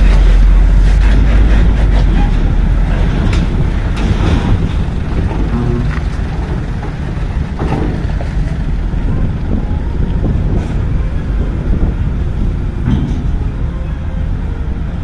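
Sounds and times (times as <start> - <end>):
truck diesel engines running: 0.0 - 15.0
wind buffeting microphone: 0.0 - 15.0.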